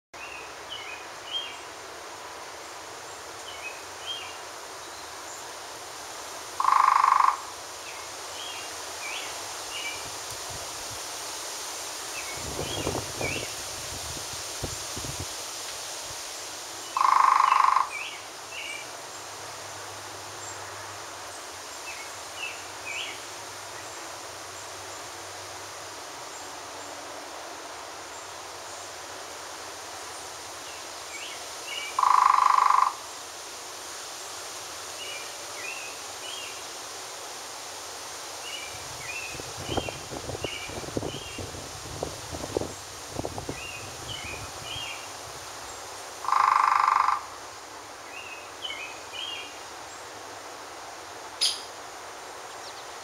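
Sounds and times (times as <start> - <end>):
faint bird chirps: 51.4 - 51.8.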